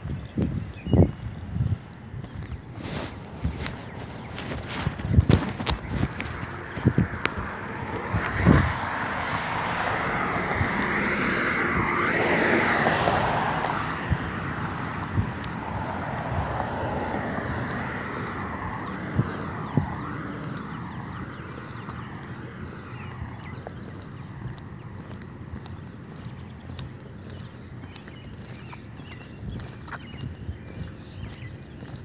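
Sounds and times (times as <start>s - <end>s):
footsteps on pavement: 0.0s - 32.0s
passing vehicle rushing: 2.8s - 25.0s.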